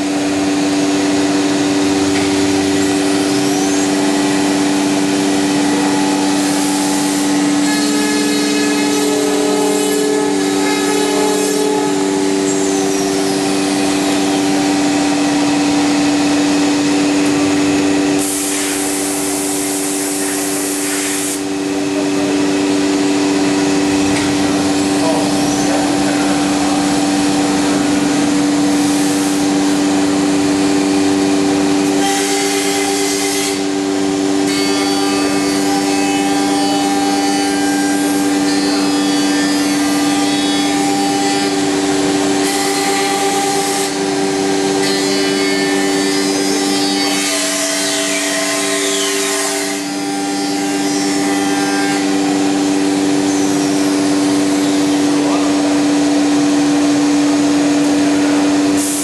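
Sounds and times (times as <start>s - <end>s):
router bit cutting wood: 0.0s - 56.7s
cnc router hum and whine: 0.0s - 59.0s
loud hiss: 18.1s - 21.5s.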